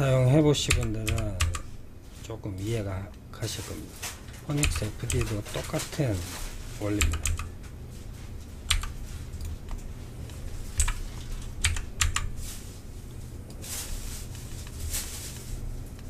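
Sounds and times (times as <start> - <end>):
low steady hum: 0.0 - 16.0
keyboard key clacks: 4.6 - 5.4.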